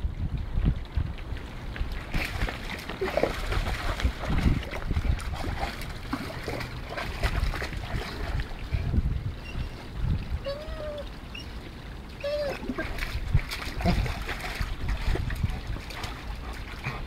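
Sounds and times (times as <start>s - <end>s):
wind rumbling on microphone: 0.0s - 17.0s
dog splashing in stream: 1.8s - 8.9s, 12.3s - 17.0s.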